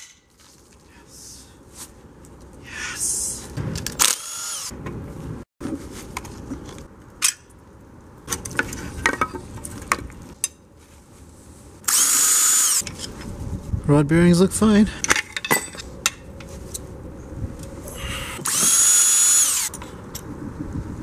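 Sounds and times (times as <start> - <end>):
cordless power tool whining: 18.4 - 19.7.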